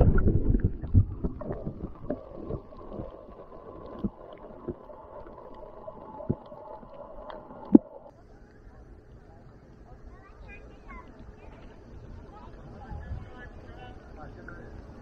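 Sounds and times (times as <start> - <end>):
dull underwater rumble: 0.0 - 8.4.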